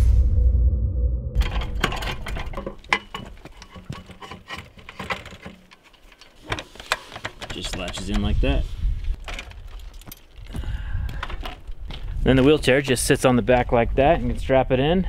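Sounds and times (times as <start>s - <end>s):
deep boom: 0.0s - 1.4s
metallic clicks and knocks: 1.4s - 8.5s.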